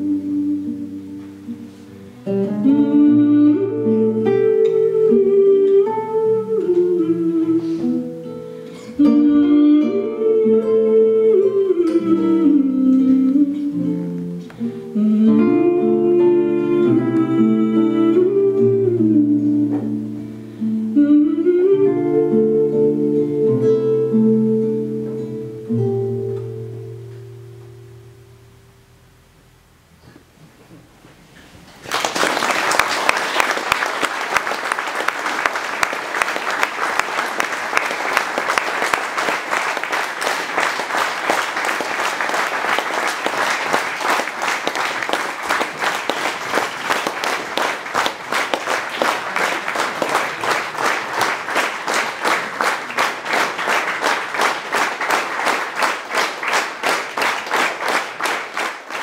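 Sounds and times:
audience applauding: 0:31.6 - 0:59.0
rhythmic clapping in unison: 0:31.8 - 0:59.0.

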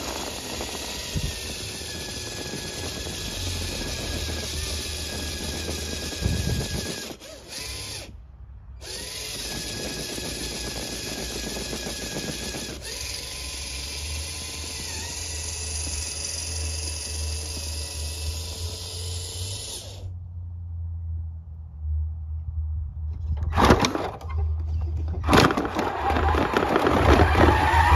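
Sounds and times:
electric motors whining: 0:00.0 - 0:08.2, 0:08.8 - 0:20.1, 0:25.3 - 0:27.9.

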